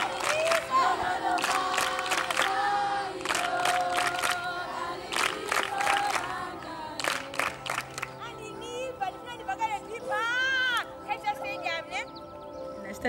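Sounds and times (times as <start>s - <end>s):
girls singing a chant: 0.0s - 7.6s
hand claps: 0.0s - 8.2s.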